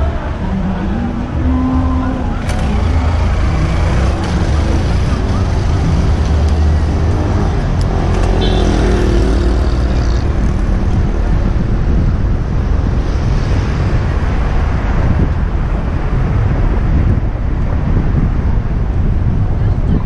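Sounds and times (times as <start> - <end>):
vehicle engine passing: 0.0 - 15.2
road traffic noise: 0.0 - 20.0
wind rumble on microphone: 0.0 - 20.0.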